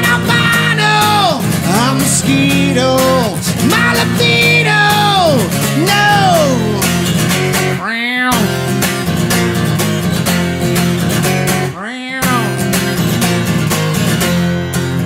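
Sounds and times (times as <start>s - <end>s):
guitar-led song: 0.0s - 15.0s.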